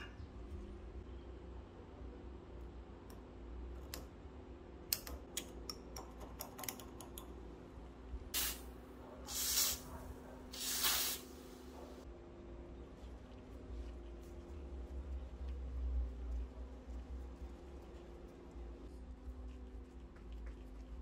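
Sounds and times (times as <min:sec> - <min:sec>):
aerosol spray hissing: 0:08.4 - 0:08.7, 0:09.3 - 0:09.9, 0:10.5 - 0:11.6.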